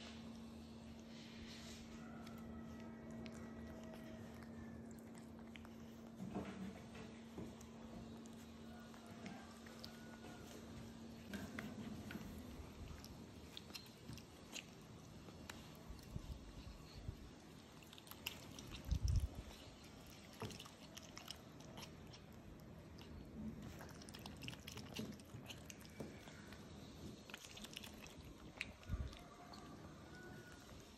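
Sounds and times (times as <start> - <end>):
otters chewing wet mouth clicks: 2.2 - 30.9.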